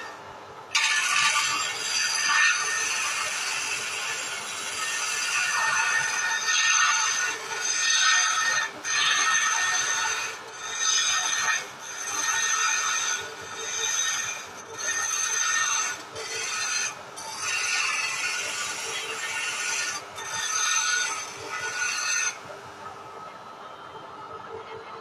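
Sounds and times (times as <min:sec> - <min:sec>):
chisel scraping wood on lathe: 0:00.7 - 0:22.4.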